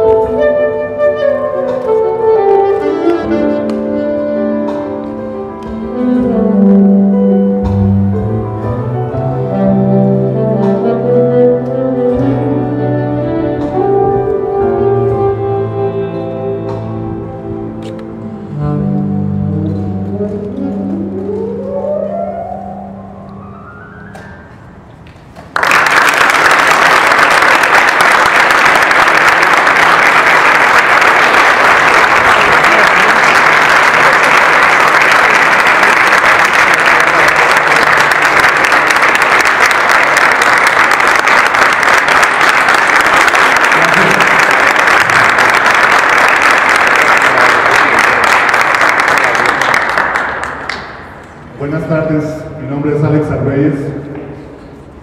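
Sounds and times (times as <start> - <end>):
audience clapping: 25.3 - 51.5.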